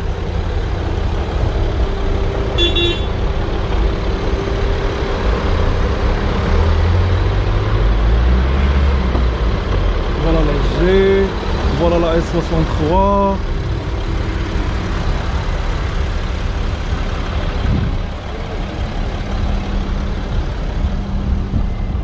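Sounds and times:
car engine idling: 0:00.0 - 0:08.1, 0:08.9 - 0:22.0
car horn toot: 0:02.6 - 0:03.2.

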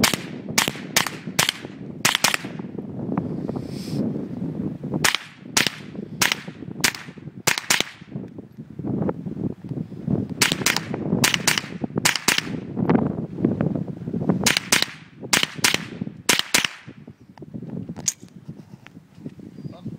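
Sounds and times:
rifle gunshots in quick pairs: 0:00.0 - 0:02.6, 0:05.0 - 0:08.1, 0:10.4 - 0:12.6, 0:14.5 - 0:16.9.

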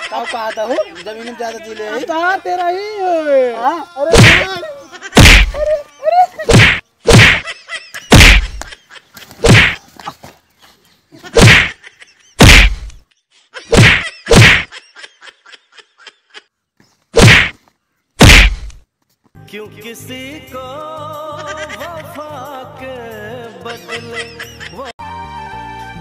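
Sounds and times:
loud whacks of blows: 0:04.1 - 0:04.5, 0:05.2 - 0:05.6, 0:06.5 - 0:07.4, 0:08.1 - 0:08.7, 0:09.4 - 0:09.8, 0:11.4 - 0:11.7, 0:12.4 - 0:13.0, 0:13.7 - 0:14.7, 0:17.2 - 0:17.6, 0:18.2 - 0:18.8.

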